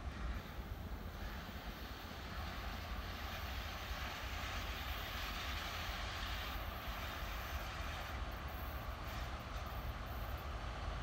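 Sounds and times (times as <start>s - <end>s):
distant diesel locomotive drone: 0.0s - 11.0s.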